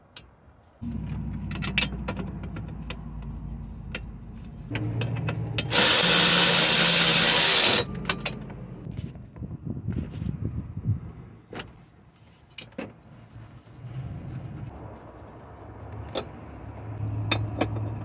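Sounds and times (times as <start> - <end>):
handling clicks and knocks: 0.0 - 5.7
loud hiss: 5.7 - 7.9
small motor humming: 5.7 - 7.9.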